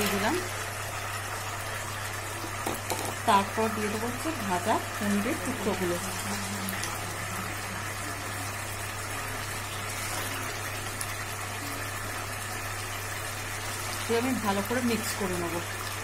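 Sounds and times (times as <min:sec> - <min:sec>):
gravy sizzling and bubbling: 0:00.0 - 0:16.0
low gas burner hum: 0:00.0 - 0:16.0.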